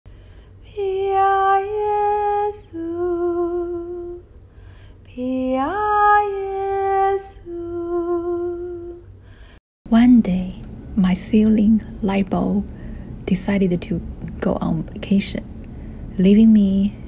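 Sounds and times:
woman humming a slow melody: 0:00.7 - 0:04.2, 0:05.1 - 0:09.1.

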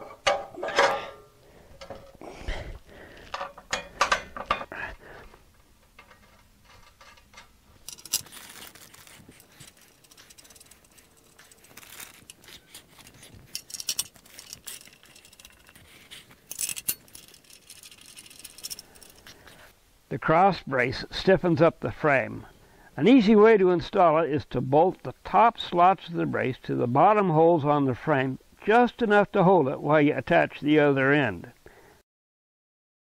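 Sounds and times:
metal clinks and knocks: 0:00.0 - 0:02.2, 0:03.2 - 0:04.8, 0:05.6 - 0:19.4
rustling: 0:00.0 - 0:19.8.

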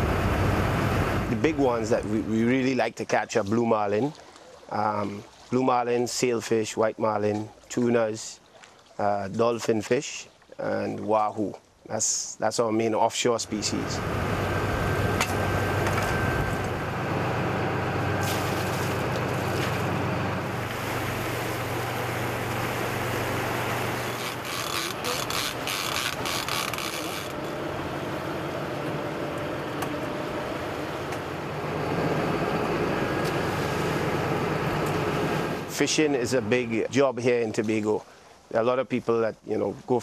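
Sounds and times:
rushing water: 0:00.0 - 0:17.0, 0:18.1 - 0:40.0
boat motor running: 0:13.4 - 0:36.7.

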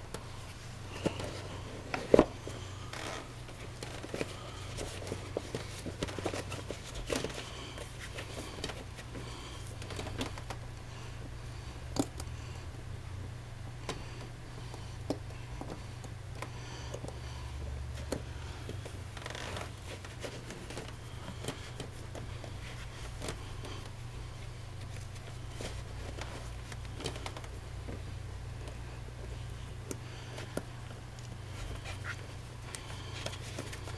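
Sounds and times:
rubber rubbing and rustling: 0:00.0 - 0:10.7, 0:17.8 - 0:33.9
steady low hum: 0:00.0 - 0:33.9.

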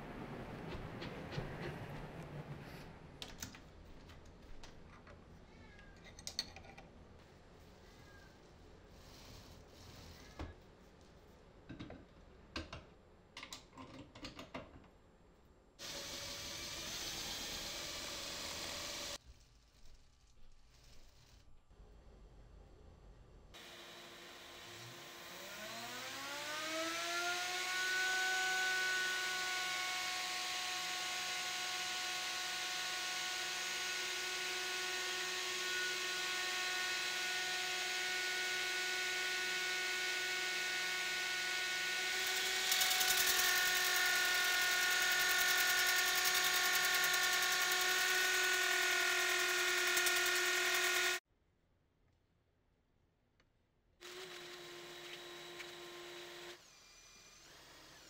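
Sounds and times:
router motor whining: 0:15.8 - 0:19.2, 0:23.6 - 0:51.2, 0:54.0 - 0:58.0.

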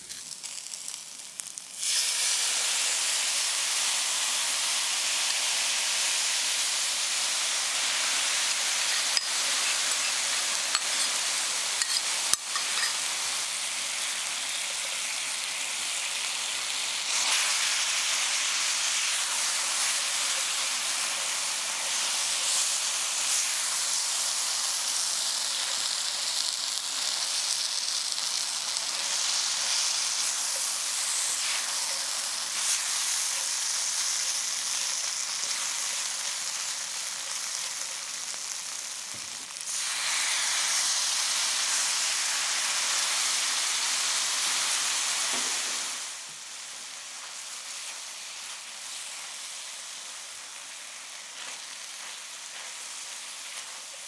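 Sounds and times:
meat sizzling in hot oil: 0:00.0 - 0:54.0
liquid poured into pan: 0:01.8 - 0:02.6.

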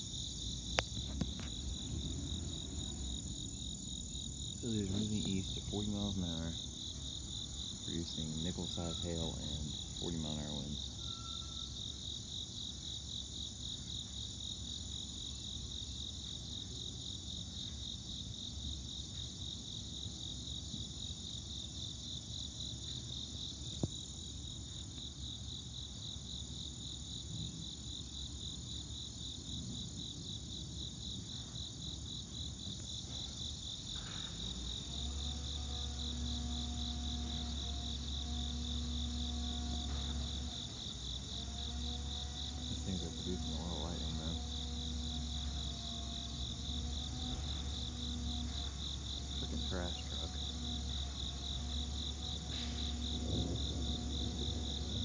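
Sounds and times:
steady low hum: 0:00.0 - 0:11.0, 0:33.0 - 0:55.0
crickets chirping: 0:00.0 - 0:55.0
faint low rumble: 0:00.7 - 0:07.0.

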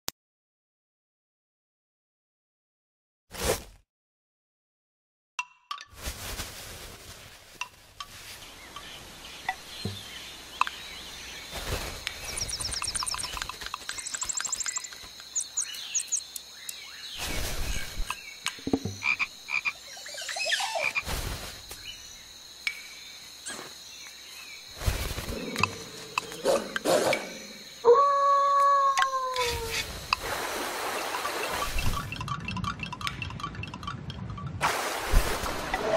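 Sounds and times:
tissue paper rustling and crumpling: 0:06.0 - 0:08.4
high bird-like chirps: 0:10.6 - 0:18.7.

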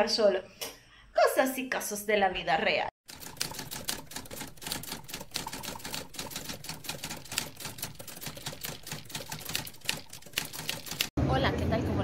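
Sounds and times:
rapid clicking and tapping: 0:03.1 - 0:11.2.

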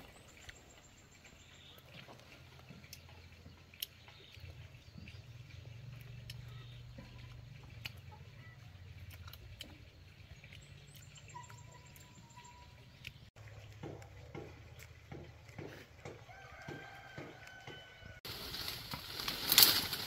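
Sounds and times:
faint bird chirps: 0:10.4 - 0:13.2
leaves and twigs rustling: 0:18.2 - 0:20.0.

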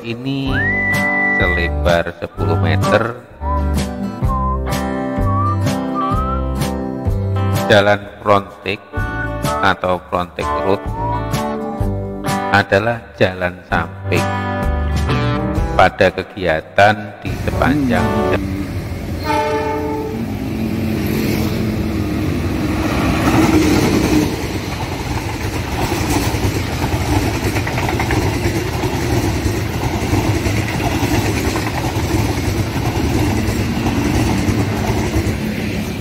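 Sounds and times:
locomotive engine passing: 0:17.3 - 0:36.0
train wheels rumbling on rails: 0:17.3 - 0:36.0.

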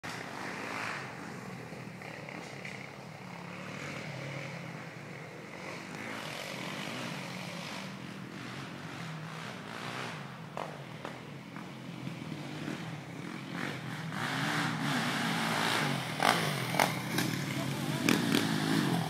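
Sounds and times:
atv engine running: 0:00.1 - 0:19.0.

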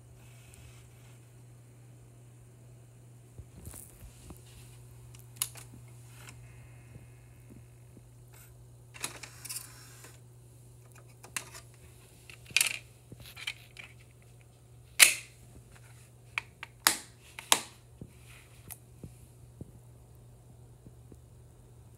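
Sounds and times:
plastic case clicks and snaps: 0:15.0 - 0:15.3, 0:16.4 - 0:17.7.

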